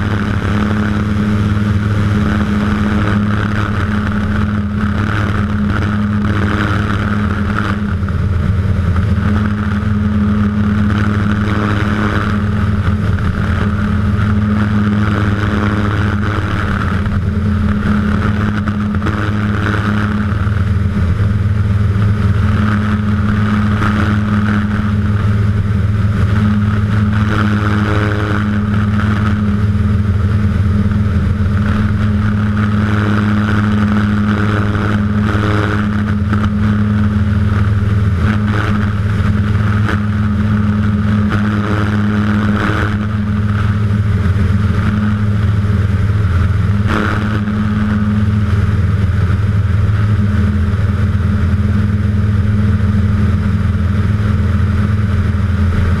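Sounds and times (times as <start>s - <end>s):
light aircraft engine drone: 0.0s - 56.0s.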